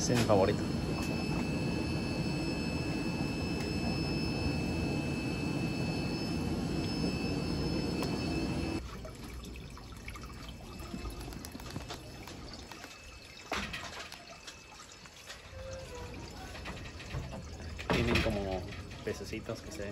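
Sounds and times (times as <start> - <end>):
faint high tones: 0.0 - 8.8
aquarium pumps and filters humming: 0.0 - 19.9
water trickling: 0.4 - 19.9.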